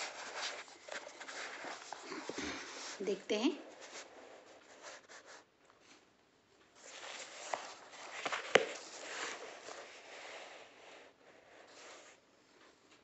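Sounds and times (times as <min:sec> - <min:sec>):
paper rustling: 0:00.0 - 0:03.1, 0:06.8 - 0:10.6.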